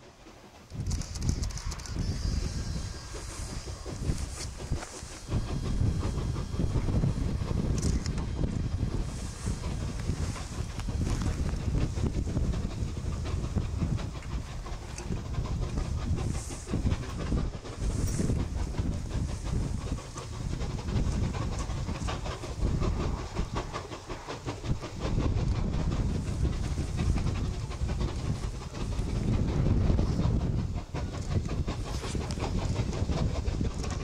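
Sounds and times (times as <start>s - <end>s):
steam locomotive exhaust chuffing: 0.0s - 34.0s
heavy low rumble: 0.7s - 34.0s.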